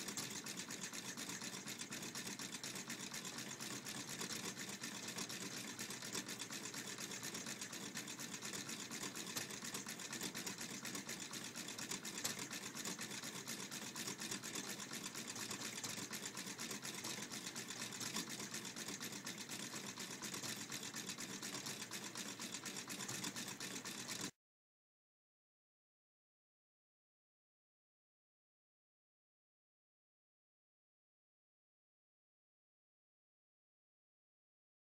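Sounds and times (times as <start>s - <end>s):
small engine rattling clatter: 0.0s - 24.3s.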